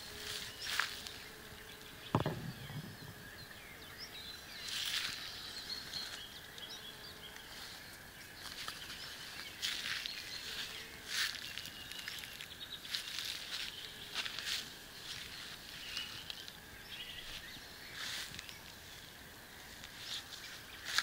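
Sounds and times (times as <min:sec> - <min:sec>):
leaves and twigs rustling: 0:00.0 - 0:01.3, 0:07.4 - 0:21.0
faint bird chirps: 0:00.4 - 0:21.0
bump: 0:02.1 - 0:03.4.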